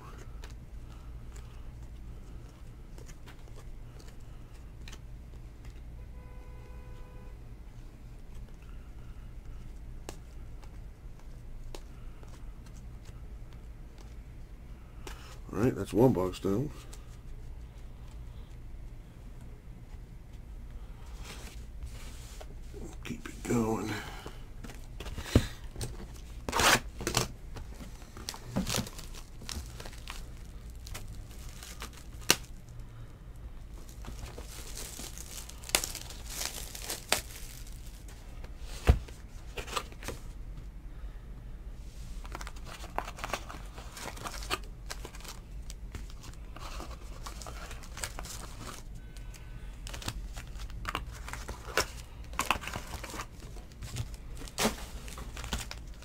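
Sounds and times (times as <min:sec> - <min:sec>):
foil packs crinkling: 0:24.8 - 0:32.7, 0:33.7 - 0:38.1, 0:42.2 - 0:56.0
plastic wrap tearing: 0:28.2 - 0:32.6, 0:33.8 - 0:38.0.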